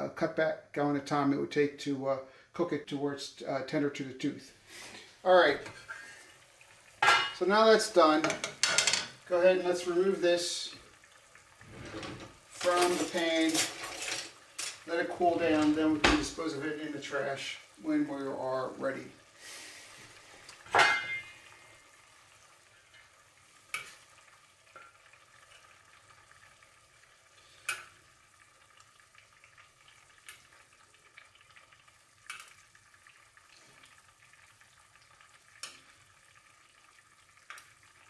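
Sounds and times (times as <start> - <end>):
meat sizzling in a pan: 4.3 - 38.0
metal tongs clinking on pan: 8.2 - 9.2, 20.7 - 21.3.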